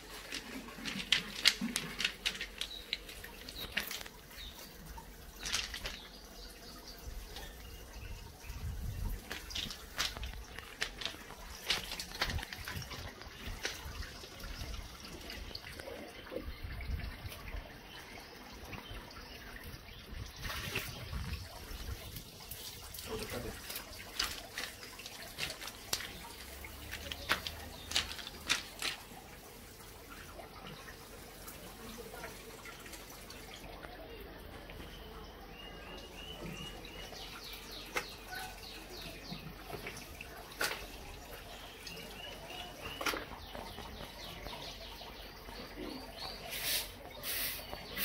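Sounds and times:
water splashing and dripping: 0.0 - 48.0.

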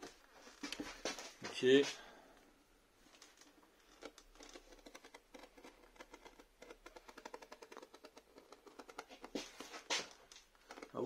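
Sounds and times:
knife blade scoring tape: 4.0 - 11.0.

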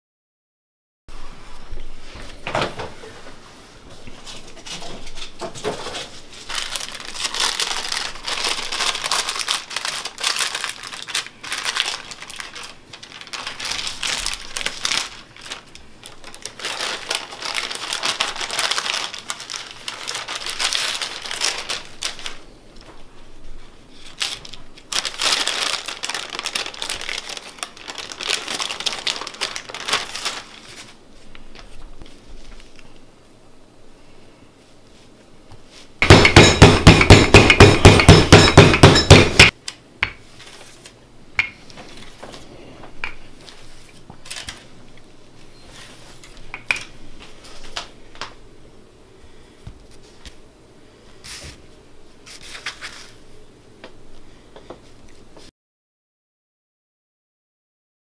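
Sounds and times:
parchment paper crinkling: 4.1 - 33.0, 43.4 - 48.3, 51.2 - 53.2.

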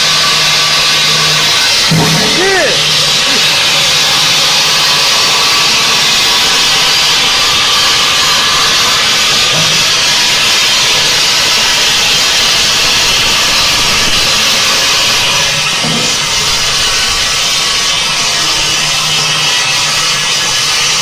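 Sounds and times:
saw blade grinding stone: 0.0 - 21.0.

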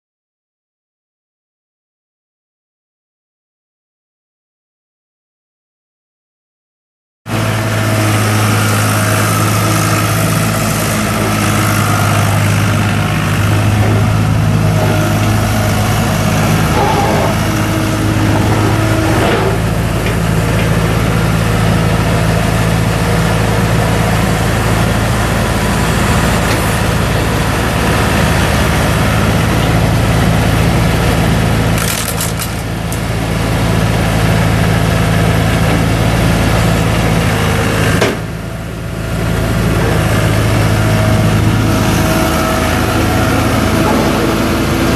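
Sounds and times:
diesel engine humming: 7.3 - 44.9.

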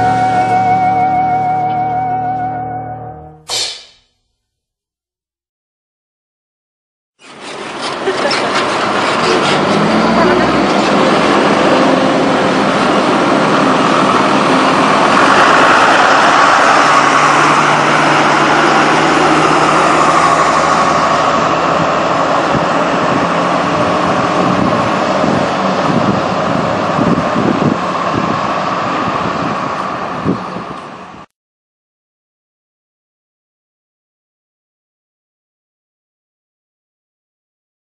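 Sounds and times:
bus driving away: 0.0 - 3.5, 7.2 - 31.3.

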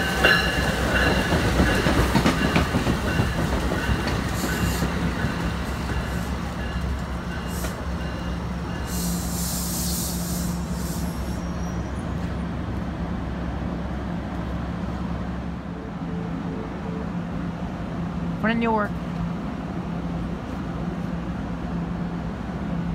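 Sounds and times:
train low rumble and hum: 0.0 - 22.9
air brake hiss: 8.9 - 11.4.

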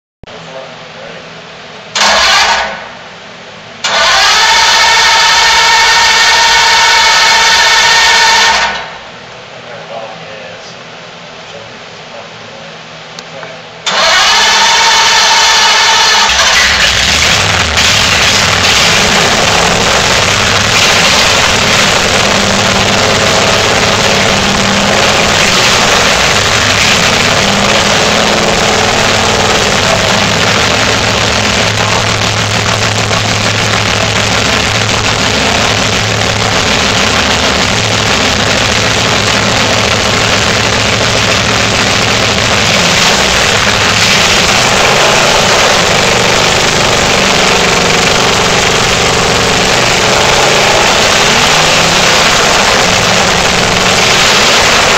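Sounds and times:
engine idling through open exhaust: 15.2 - 54.9.

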